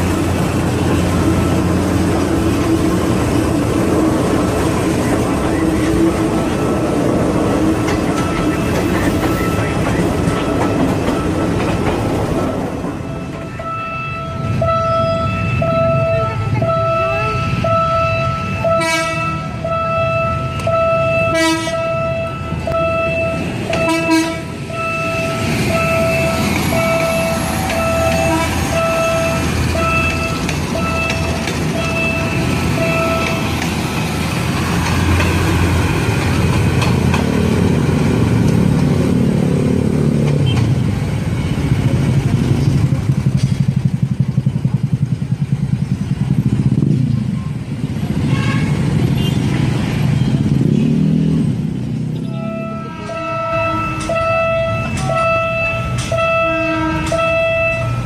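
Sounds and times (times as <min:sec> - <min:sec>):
train rumbling on rails: 0:00.0 - 0:58.0
train horn tooting: 0:13.0 - 0:33.4, 0:48.2 - 0:49.5, 0:52.2 - 0:58.0.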